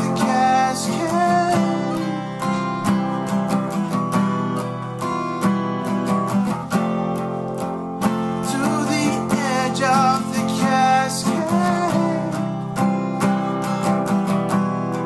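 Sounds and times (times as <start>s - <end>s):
man singing: 0.0s - 3.3s, 8.3s - 13.4s
acoustic guitars strummed: 0.0s - 15.0s.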